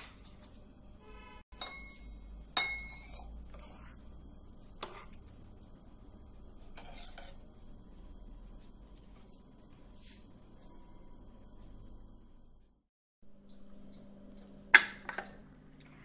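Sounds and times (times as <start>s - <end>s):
steel spoon scraping a pan: 1.0s - 4.0s, 4.8s - 5.3s, 6.6s - 7.5s.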